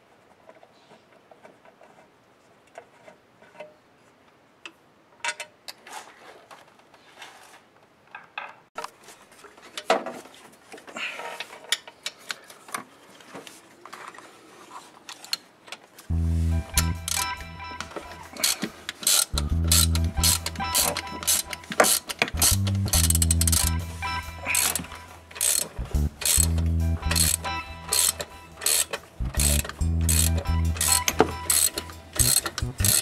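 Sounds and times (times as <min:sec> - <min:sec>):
clattering and rustling handling: 0:05.2 - 0:16.1
hand ratchet clicking: 0:16.8 - 0:23.8, 0:24.5 - 0:33.0
metal tools clinking: 0:16.8 - 0:33.0.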